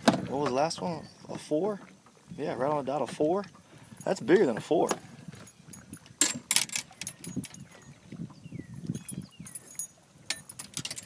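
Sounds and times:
fishing gear clattering: 3.9s - 7.9s, 8.9s - 11.0s.

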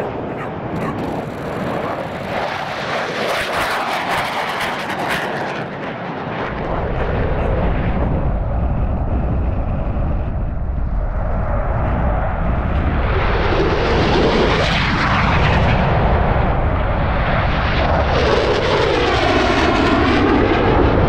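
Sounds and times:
fighter jet flying past: 0.0s - 21.0s
deep low rumble: 6.4s - 14.5s.

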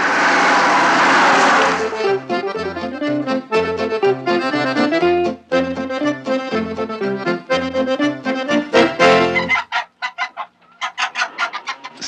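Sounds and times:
accordion playing quick tune: 1.1s - 9.6s.

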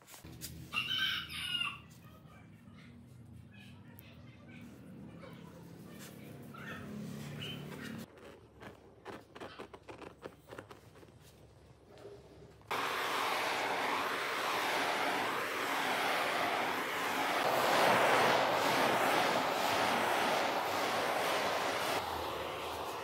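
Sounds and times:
butane torch flame hissing: 12.7s - 23.0s.

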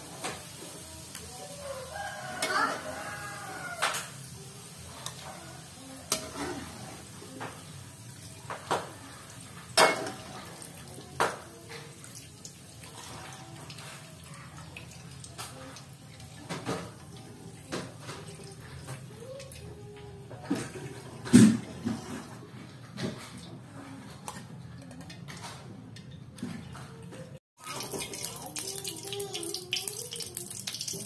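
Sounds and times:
frying oil sizzling: 0.0s - 19.2s, 27.6s - 31.0s.

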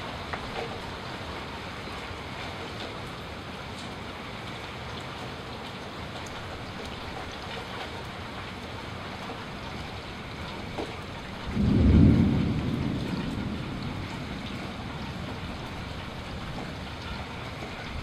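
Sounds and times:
steady rain falling: 0.0s - 18.0s
thunder rumble: 10.3s - 18.0s.

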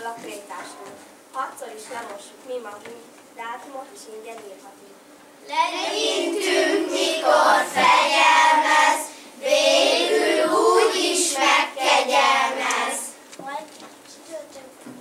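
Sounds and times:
children singing in unison: 5.6s - 13.2s.

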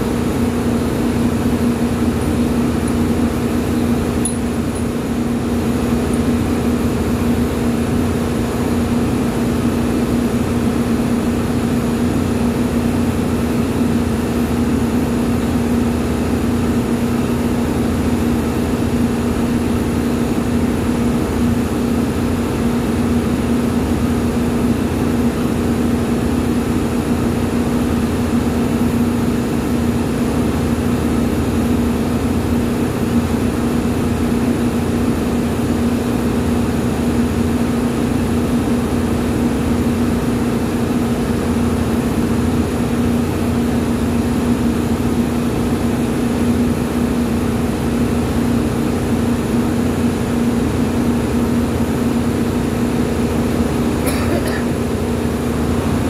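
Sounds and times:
machinery droning: 0.0s - 9.7s, 53.2s - 56.0s.

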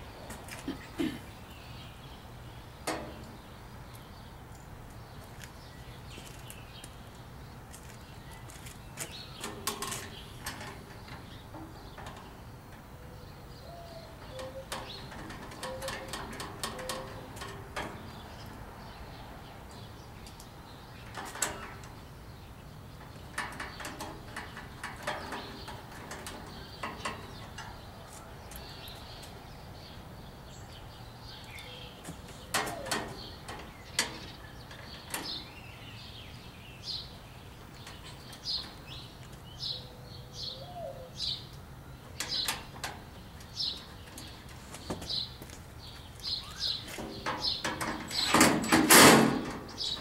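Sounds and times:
bird chirping: 0.6s - 48.5s, 49.6s - 50.0s
metallic clicks and knocks: 9.0s - 12.9s, 14.2s - 18.5s, 20.2s - 22.0s, 23.0s - 27.8s, 32.4s - 35.5s, 46.9s - 50.0s.

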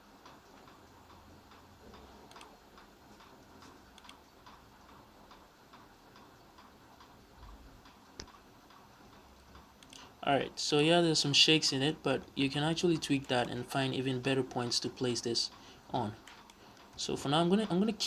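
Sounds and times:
soft ticks: 0.2s - 10.1s, 14.2s - 18.0s.

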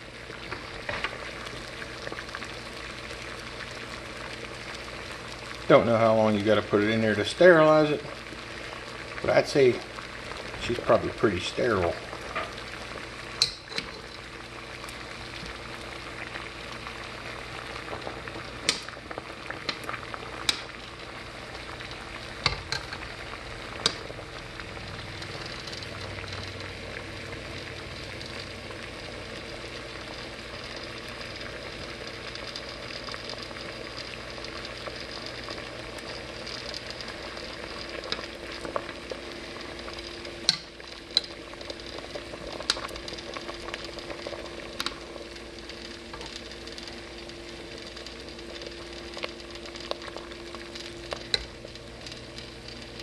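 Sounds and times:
water boiling in a pot: 0.0s - 53.0s
wire tongs clicking against pot: 13.4s - 14.2s, 18.6s - 18.9s, 19.6s - 20.7s, 22.4s - 23.0s, 23.8s - 24.1s, 40.0s - 41.4s, 42.6s - 43.0s, 44.8s - 45.0s.

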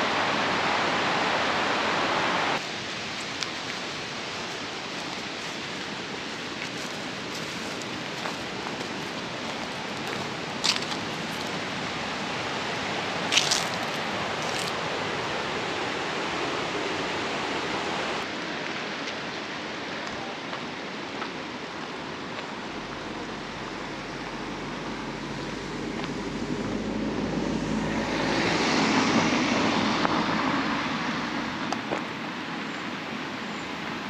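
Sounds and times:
water rushing: 0.0s - 34.0s
vehicle passing rumble: 22.7s - 31.7s.

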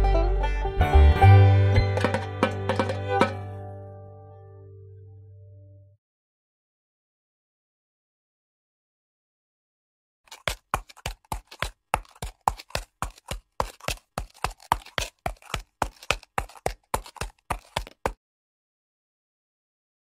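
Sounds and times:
horse hooves clip-clop: 2.0s - 3.4s, 10.3s - 18.2s.

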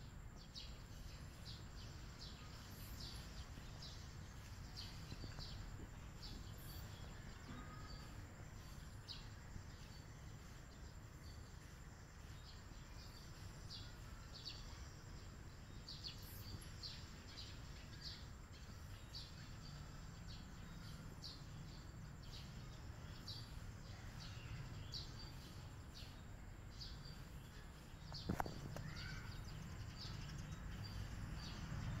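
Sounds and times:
small bird chirping: 0.0s - 32.0s.

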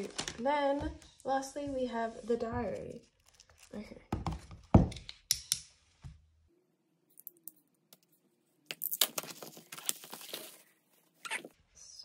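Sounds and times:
plastic sleeve crinkling: 0.0s - 0.6s, 3.0s - 3.8s.

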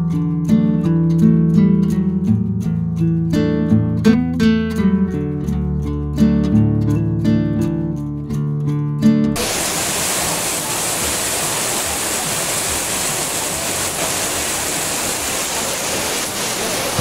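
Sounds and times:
rain on a tent: 9.4s - 17.0s.

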